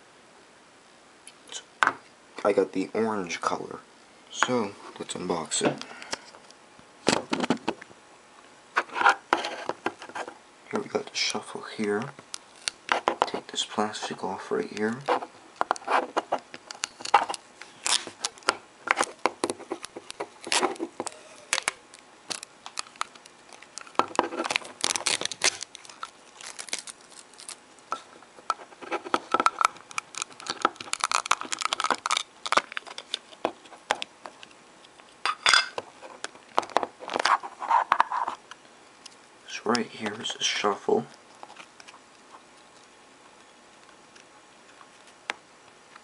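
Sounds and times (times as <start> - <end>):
plastic wrapping crinkling: 14.8 - 35.2.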